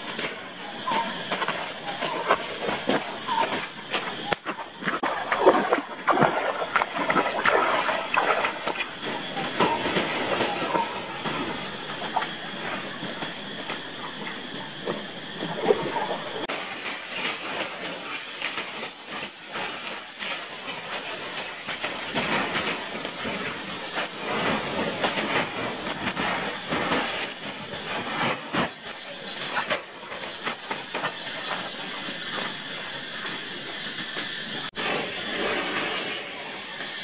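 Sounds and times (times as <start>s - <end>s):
dry leaves rustling and crunching: 16.5s - 34.0s.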